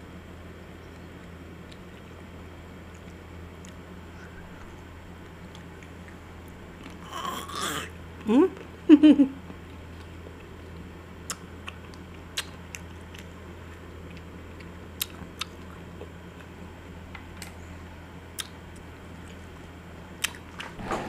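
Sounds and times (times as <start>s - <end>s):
steady low hum: 0.0s - 21.0s
bites and mouth clicks: 11.3s - 13.3s, 18.4s - 18.6s, 20.2s - 20.8s.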